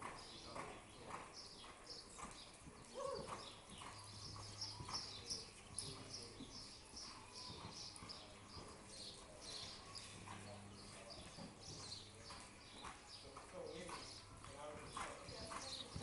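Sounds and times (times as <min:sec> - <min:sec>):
muffled hoofbeats: 0:00.0 - 0:16.0.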